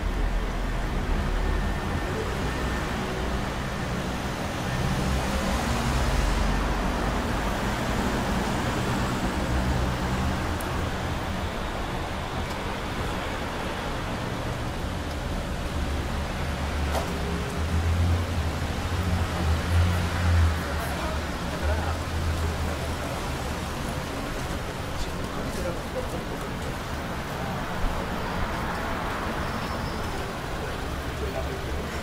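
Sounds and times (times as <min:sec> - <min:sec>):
cars driving past: 0:00.0 - 0:25.4.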